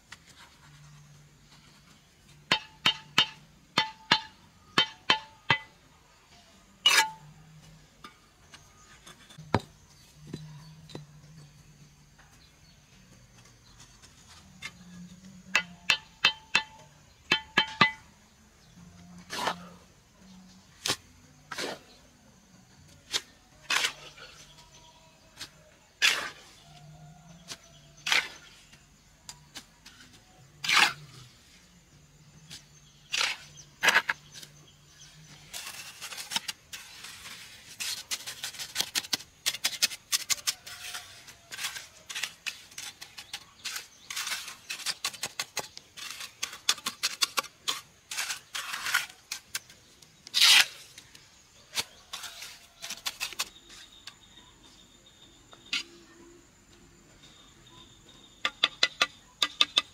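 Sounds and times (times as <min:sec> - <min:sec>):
knocks on wood or metal: 0:02.5 - 0:05.7.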